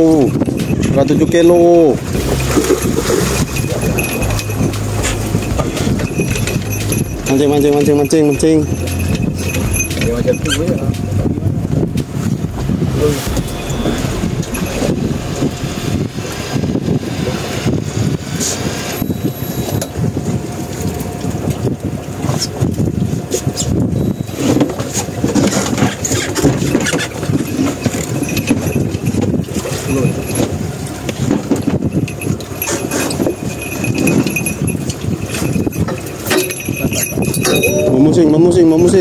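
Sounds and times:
boat noise: 0.0 - 39.0
wind buffeting microphone: 0.0 - 39.0
thin high whine: 0.2 - 19.9
steady low hum: 0.3 - 19.8.

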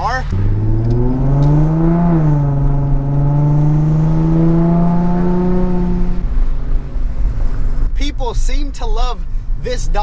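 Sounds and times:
car engine accelerating: 0.0 - 8.0.

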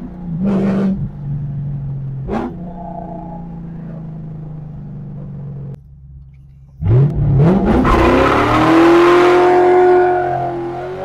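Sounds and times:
car engine revving hard: 6.8 - 11.0.

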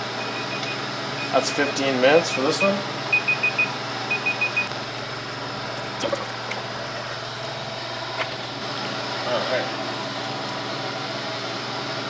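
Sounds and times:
steady background hum: 0.0 - 12.0
digital timer alarm beeping: 0.2 - 1.5, 2.2 - 4.7.

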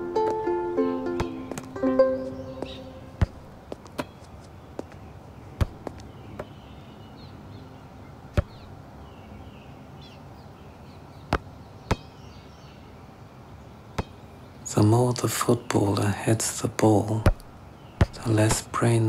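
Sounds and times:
football thudding when kicked: 1.1 - 1.8, 2.6 - 4.2, 5.6 - 6.6, 8.3 - 8.7, 11.3 - 12.1, 14.0 - 14.2, 17.2 - 18.3.

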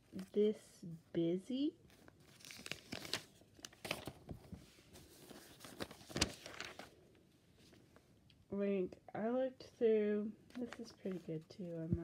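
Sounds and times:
paper rustling and crinkling: 1.8 - 7.9, 10.5 - 12.0.

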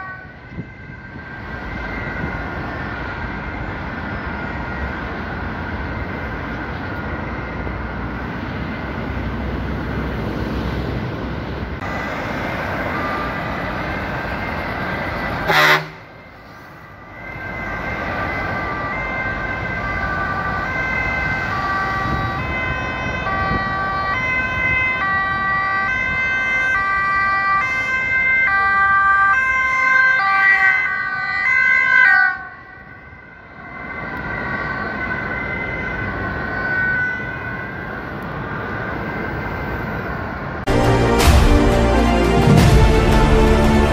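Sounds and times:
two-tone emergency siren: 0.0 - 7.9, 11.8 - 43.9
motorway traffic: 0.0 - 43.9.

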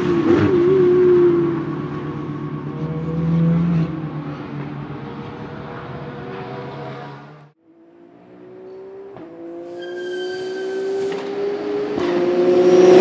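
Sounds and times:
race car engine pulling away: 0.0 - 13.0.

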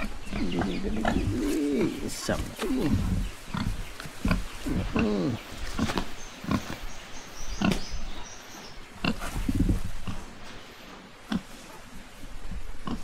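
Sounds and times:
pig grunting: 0.0 - 6.8.

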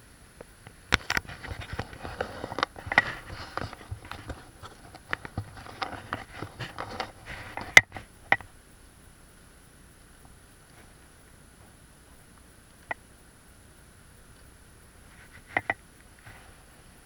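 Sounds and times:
sharp clicks: 9.6 - 16.2.

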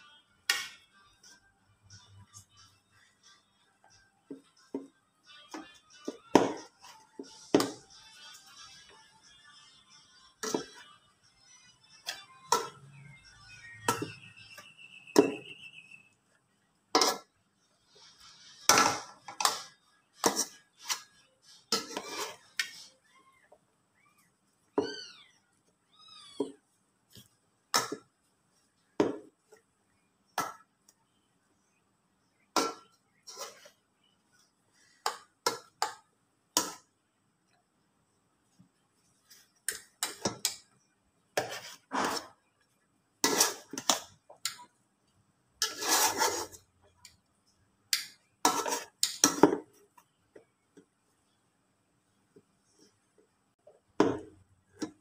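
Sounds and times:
potato masher scraping pot: 21.7 - 22.7, 43.2 - 44.0, 45.6 - 46.7, 48.4 - 49.5.

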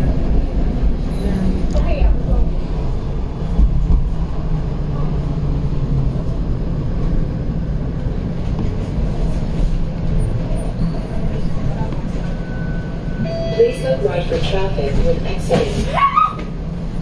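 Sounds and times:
streetcar rumble and hum: 0.0 - 17.0.

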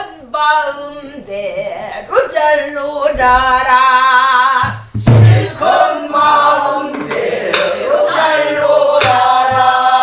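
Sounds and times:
group singing folk song: 3.2 - 10.0.

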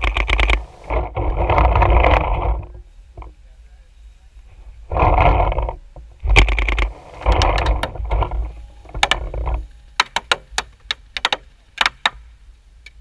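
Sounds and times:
paintball markers firing: 9.0 - 9.4, 10.0 - 12.2.

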